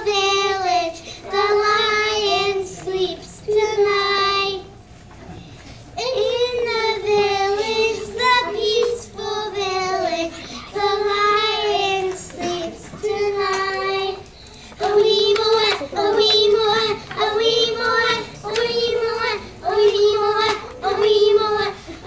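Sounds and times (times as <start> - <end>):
children singing: 6.0 - 22.0.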